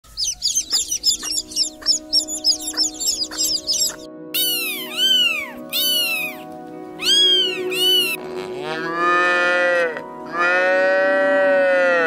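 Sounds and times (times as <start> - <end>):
kittens meowing: 0.1 - 6.4, 7.0 - 8.2
background music: 0.1 - 12.0
cow mooing: 7.5 - 12.0.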